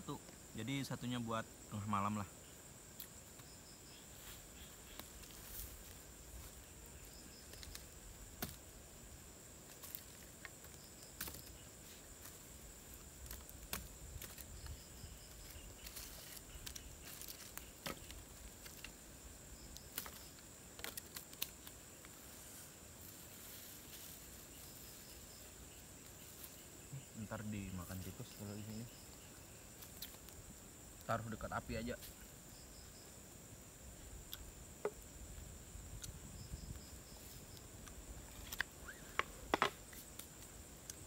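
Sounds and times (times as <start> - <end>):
night insects chorus: 0.0 - 41.0
firewood clicks and snaps: 7.4 - 8.6, 9.6 - 11.5, 13.1 - 14.8, 15.4 - 19.0, 19.6 - 22.2, 29.7 - 31.1, 37.5 - 41.0.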